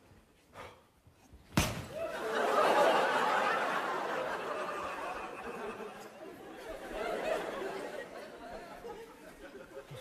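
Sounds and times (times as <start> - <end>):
sharp smack: 1.5 - 2.0
audience laughing: 2.0 - 10.0.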